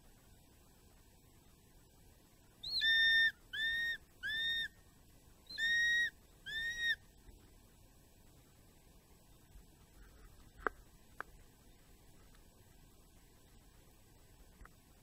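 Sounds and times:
hawk-eagle shrill whistled calls: 2.6 - 4.8, 5.5 - 7.0.

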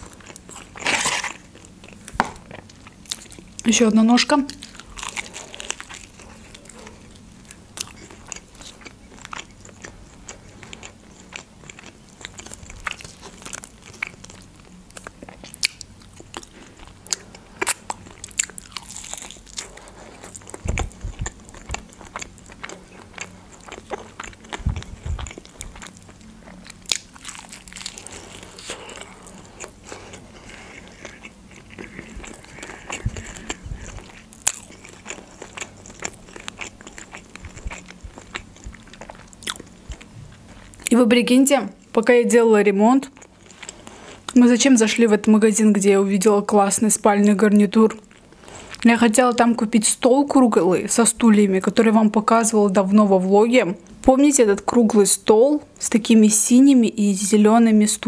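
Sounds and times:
crunching fried chicken: 0.0 - 3.6, 4.5 - 40.9
wet chewing: 4.5 - 40.9.

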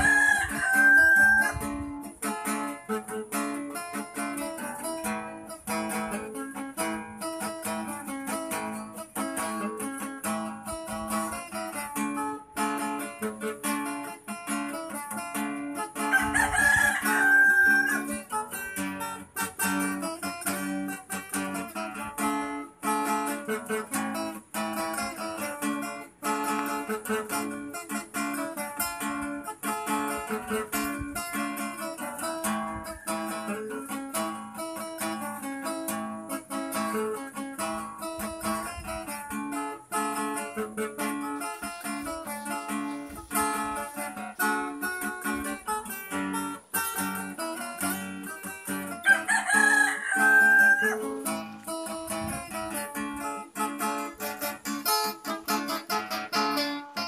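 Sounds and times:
pitched cry: 0.0 - 1.8, 16.1 - 18.4, 49.0 - 51.6
acoustic guitar music: 0.0 - 57.0.

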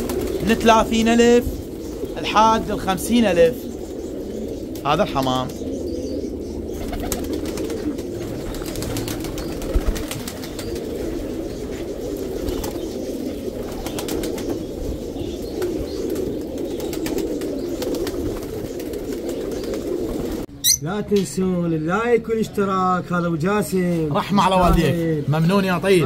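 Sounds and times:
pigeons cooing: 0.0 - 20.8.

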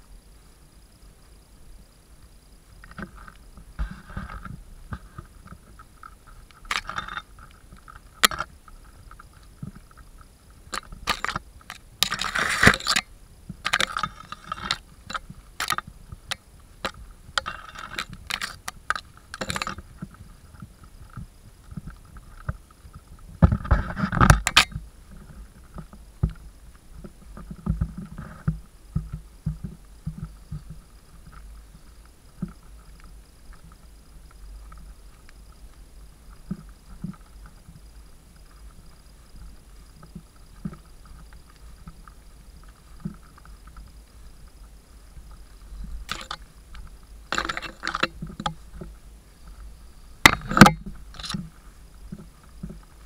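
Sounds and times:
wind rumbling on microphone: 0.0 - 53.0.

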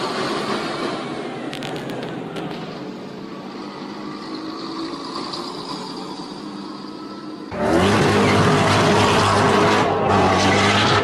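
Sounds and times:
loud vehicle drone: 0.0 - 11.0
traffic noise inside moving car: 0.0 - 11.0.

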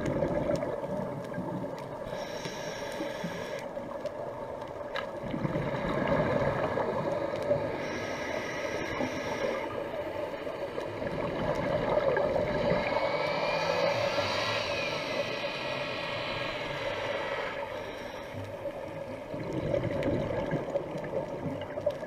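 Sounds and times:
boat engine droning underwater: 0.0 - 22.0
engine whine: 12.3 - 18.4.

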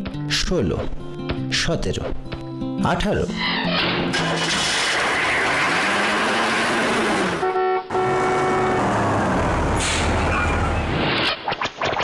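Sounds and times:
busy street traffic: 4.0 - 11.3
vehicle horn honk: 7.3 - 9.0.

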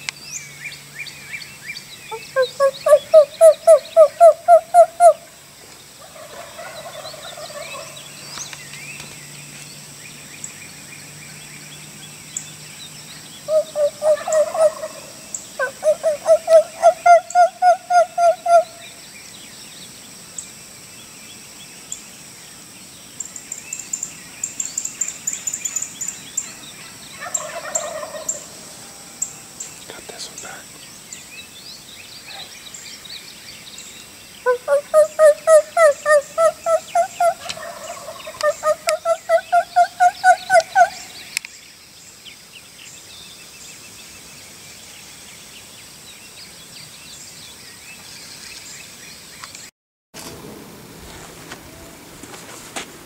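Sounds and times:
high insect whine: 0.4 - 46.3
wild turkeys calling: 2.1 - 5.2, 6.1 - 8.0, 13.5 - 18.8, 27.2 - 28.6, 34.4 - 41.2.

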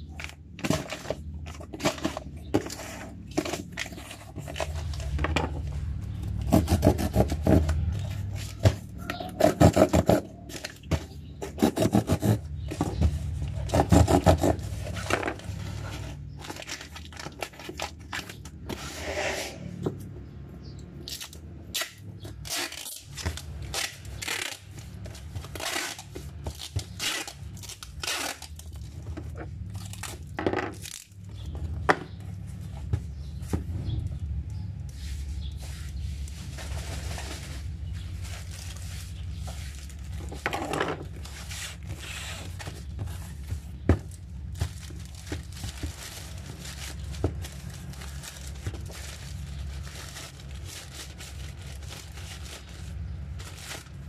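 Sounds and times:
packaging rustling: 34.8 - 54.0.

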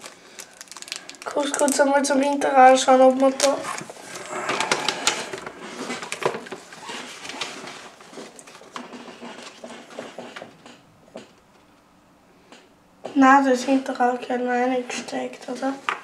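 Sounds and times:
paper rustling and crackling: 0.0 - 2.2, 3.1 - 10.5.

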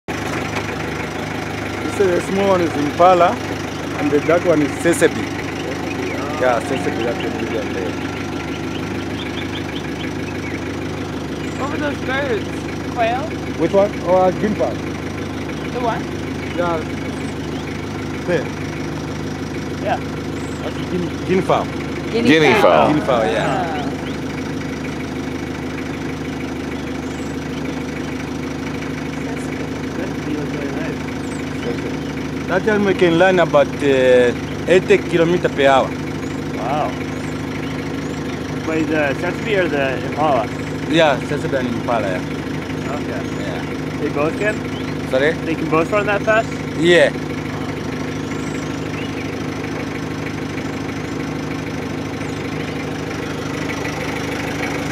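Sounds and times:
vehicle engine idling: 0.0 - 54.9.

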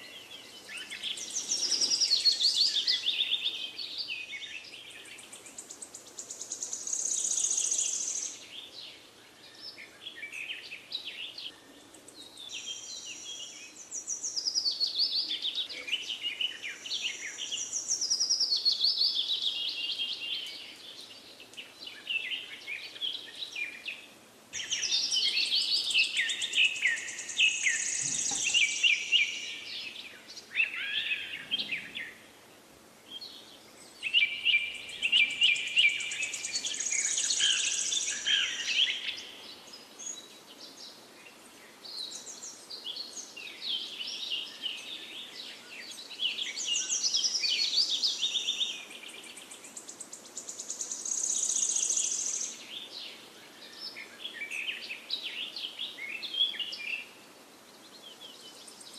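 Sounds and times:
songbirds chirping and trilling: 0.0 - 58.9.

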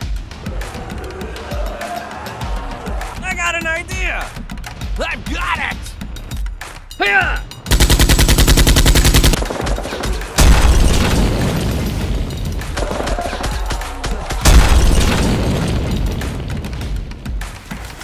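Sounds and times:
machine-gun fire: 7.7 - 16.6
heavy booms: 14.4 - 17.4.

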